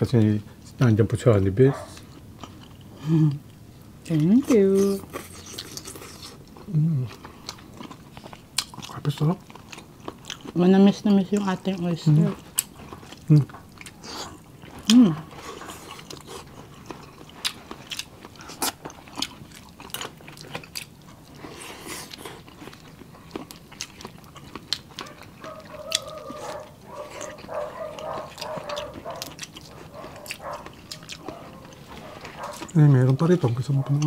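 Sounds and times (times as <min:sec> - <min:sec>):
chewing and mouth smacks: 0:05.1 - 0:10.6, 0:12.3 - 0:34.0.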